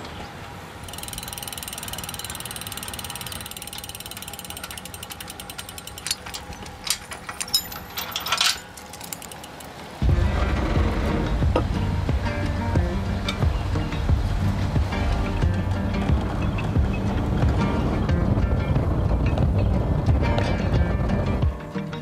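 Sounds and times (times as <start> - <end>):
ratchet-like metal clicking: 0.8 - 9.9.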